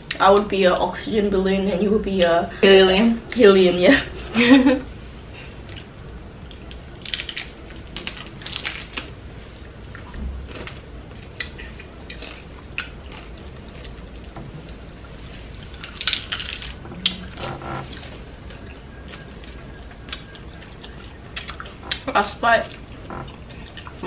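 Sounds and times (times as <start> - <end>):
taco shells crunching: 6.5 - 9.2, 10.5 - 22.1.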